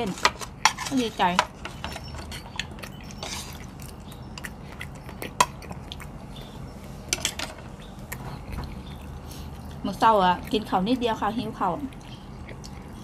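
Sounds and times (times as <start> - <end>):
cutlery scraping plates: 0.0 - 3.6, 7.1 - 7.7
people chewing: 0.0 - 13.0.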